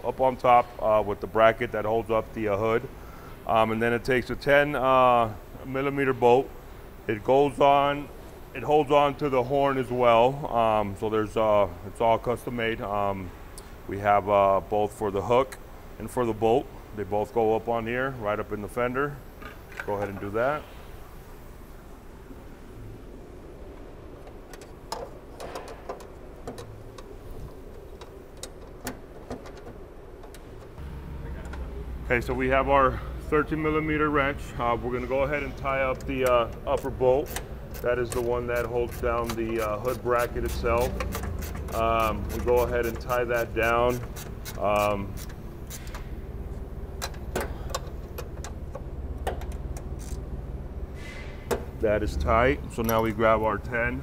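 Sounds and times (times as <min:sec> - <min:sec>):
steady low hum: 0:00.0 - 0:54.0
wrench clicking: 0:35.9 - 0:46.1, 0:47.0 - 0:50.3.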